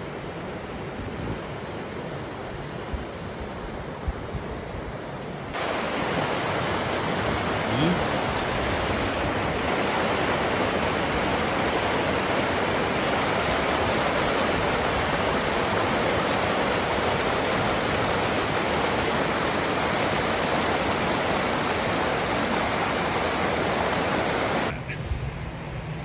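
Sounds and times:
water rushing over rocks: 5.5 - 24.7.

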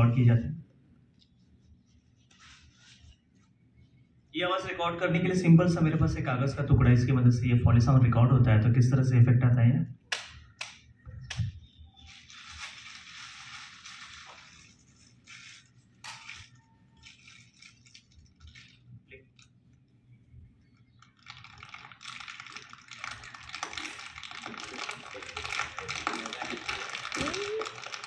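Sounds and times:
paper crumpling crackle: 1.4 - 3.5, 12.0 - 19.5, 21.0 - 28.0.

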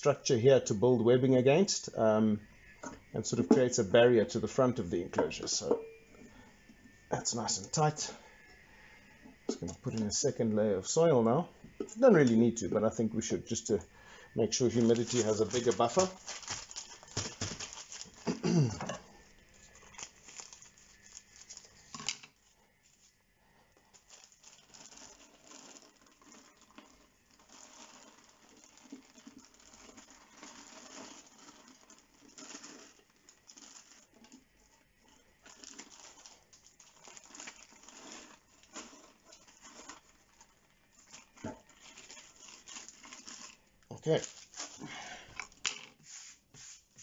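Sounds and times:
plastic bag crinkling: 9.7 - 10.4, 11.9 - 45.9
soil pattering: 14.5 - 18.6.

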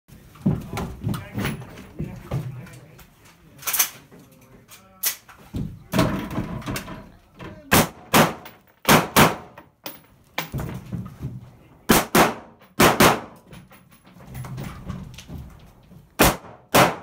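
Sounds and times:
rifle shots with echo: 7.7 - 9.6, 11.9 - 13.4, 16.2 - 17.0.

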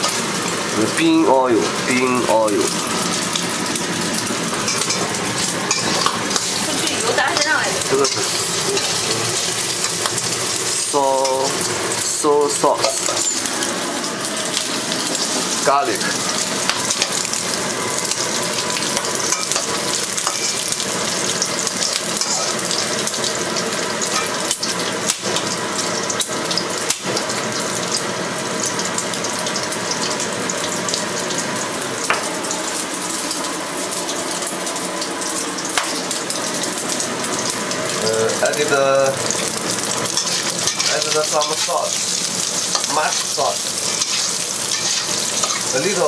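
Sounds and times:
pork sizzling in hot oil: 0.0 - 46.0
spatula stirring in wok: 39.4 - 45.8.

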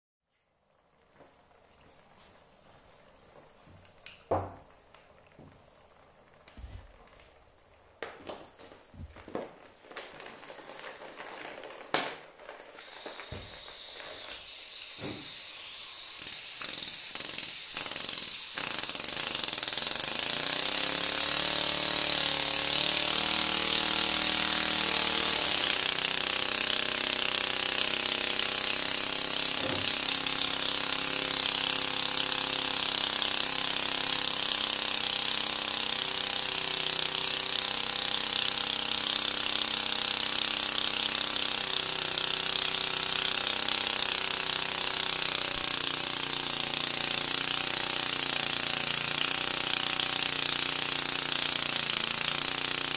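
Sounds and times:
miniature piston engine buzzing: 11.4 - 52.9.

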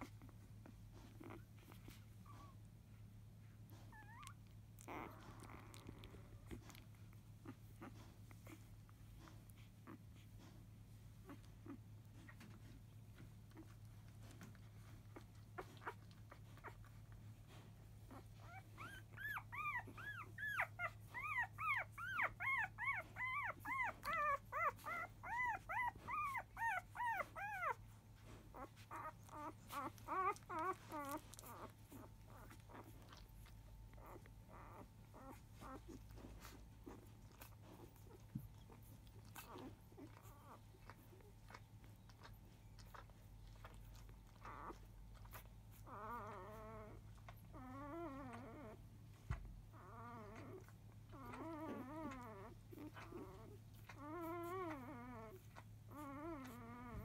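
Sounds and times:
newborn puppy squealing: 18.0 - 57.0.

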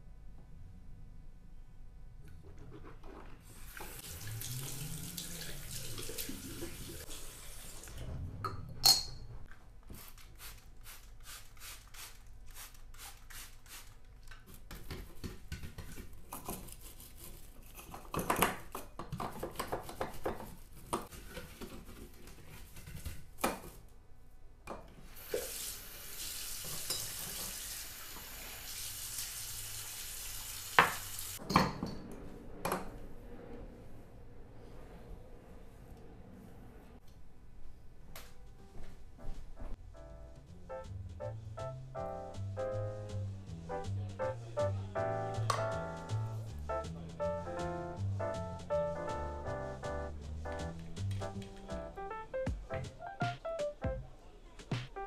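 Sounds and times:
basin cleaning strokes: 2.7 - 8.0, 9.9 - 14.0, 25.1 - 31.4.

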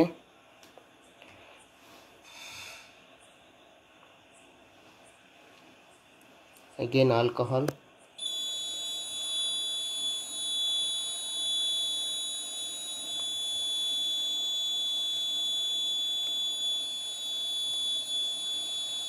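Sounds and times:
high-pitched buzzer tone: 2.2 - 3.0, 8.2 - 19.0.

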